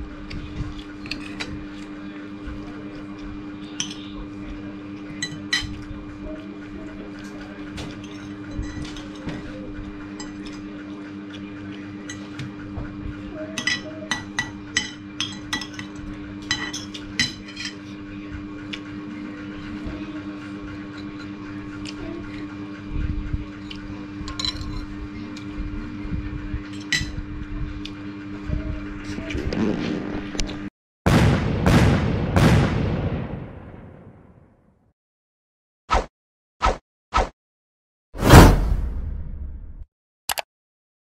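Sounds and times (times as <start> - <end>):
steady low hum: 0.0 - 30.6
cutlery clinking on ceramic plate: 5.2 - 5.8, 13.6 - 17.9.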